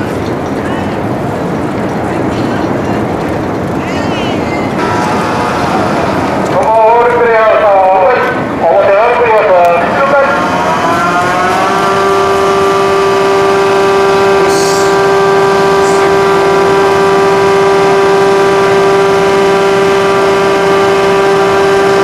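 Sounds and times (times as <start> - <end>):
ship's whistle blast: 4.8 - 6.4, 9.4 - 22.0.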